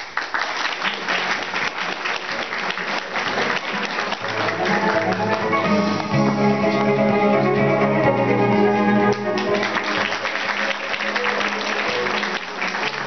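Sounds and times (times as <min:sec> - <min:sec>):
audience applauding: 0:00.0 - 0:06.4, 0:09.0 - 0:13.0
instrumental music: 0:02.8 - 0:13.0.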